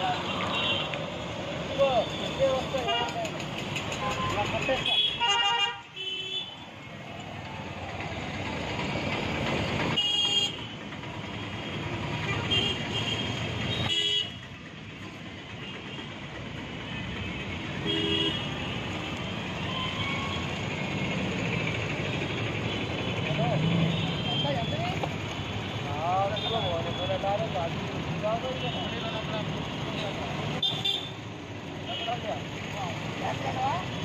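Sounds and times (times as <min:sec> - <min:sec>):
street traffic: 0:00.0 - 0:34.0
vehicle horn toots: 0:17.8 - 0:18.6.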